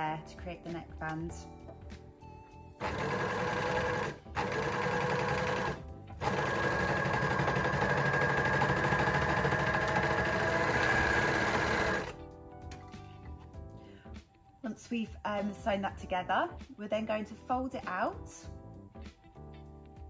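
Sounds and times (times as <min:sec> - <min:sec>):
overlocker stitching: 0:02.8 - 0:12.2.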